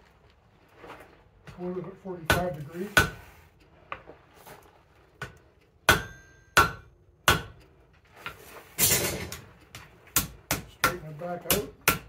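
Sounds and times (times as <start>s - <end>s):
hammer striking hot metal on anvil: 5.9s - 7.6s.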